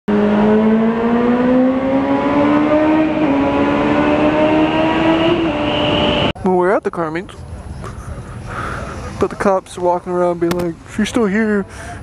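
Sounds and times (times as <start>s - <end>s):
motorcycle engine at high revs: 0.1s - 6.3s
wind rushing over microphone: 0.8s - 6.4s.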